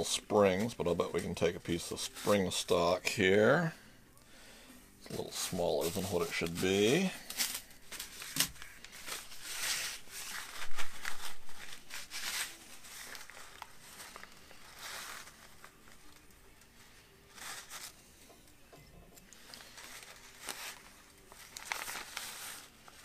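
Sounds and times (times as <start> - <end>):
plastic crinkling and rustling: 5.0 - 23.0.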